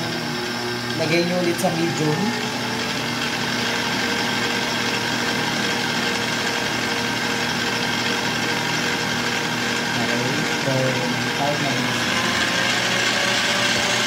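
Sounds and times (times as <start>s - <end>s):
stand mixer whisking: 0.0s - 14.0s.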